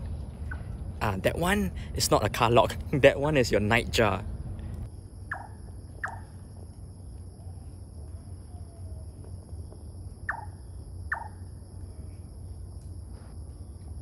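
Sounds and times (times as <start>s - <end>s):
high insect drone: 0.0s - 14.0s
low background rumble: 0.0s - 14.0s
nightjar calling: 5.3s - 6.3s, 10.2s - 11.4s.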